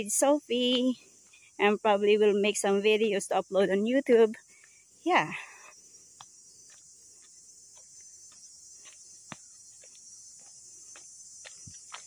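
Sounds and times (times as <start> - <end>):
high-pitched insect chorus: 0.0 - 12.0
footsteps on dirt trail: 5.8 - 12.0.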